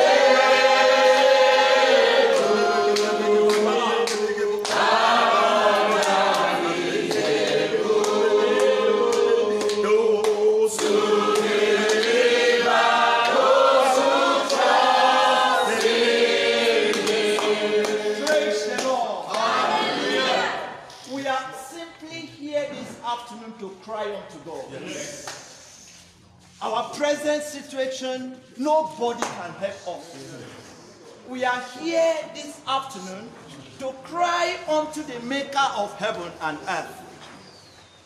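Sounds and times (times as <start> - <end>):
congregation singing unaccompanied: 0.0 - 21.5
hand claps: 2.3 - 16.0, 16.7 - 19.6, 25.2 - 25.5, 29.2 - 29.4.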